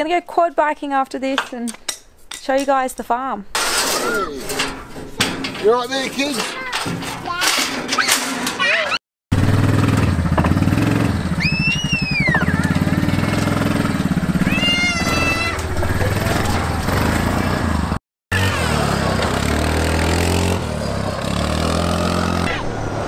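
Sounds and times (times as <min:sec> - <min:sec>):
quad bike engine idling: 0:09.3 - 0:18.0
short high-pitched cries: 0:14.4 - 0:15.7.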